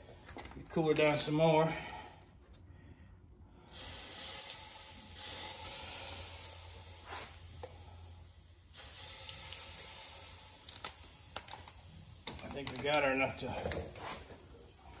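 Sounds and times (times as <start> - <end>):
water sizzling on hot metal: 3.7 - 14.0.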